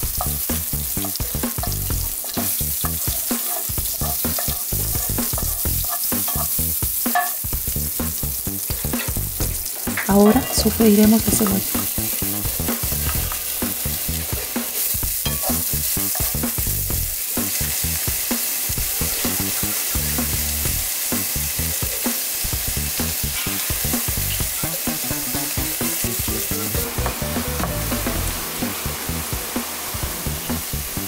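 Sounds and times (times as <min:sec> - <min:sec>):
onion sizzling in a frying pan: 0:00.0 - 0:31.0
wooden spoon scraping a pan: 0:01.0 - 0:07.4, 0:08.7 - 0:16.4, 0:23.3 - 0:24.6.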